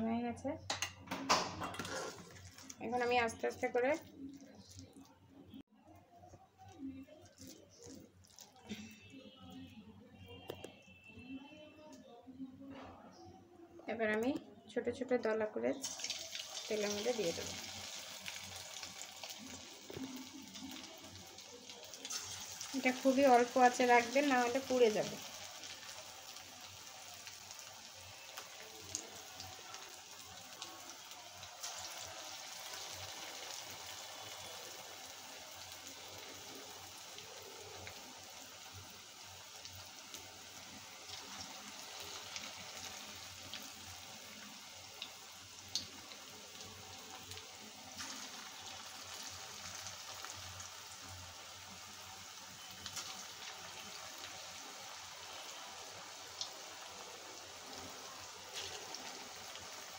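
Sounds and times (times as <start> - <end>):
food deep-frying in oil: 0.7 - 5.6, 6.5 - 9.7, 15.3 - 59.9
sharp crackles of oil: 15.8 - 51.2, 52.1 - 59.9.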